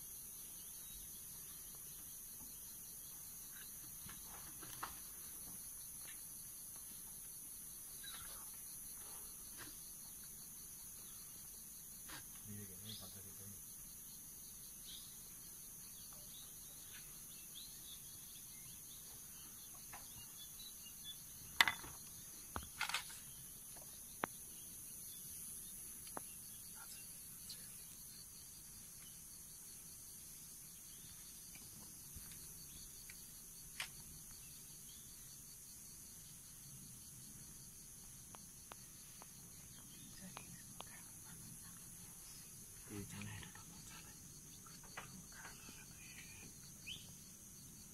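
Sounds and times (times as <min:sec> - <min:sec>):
high-pitched insect chorus: 0:00.0 - 0:47.9
faint bird chirps: 0:07.7 - 0:13.6, 0:14.2 - 0:33.3, 0:39.4 - 0:47.2.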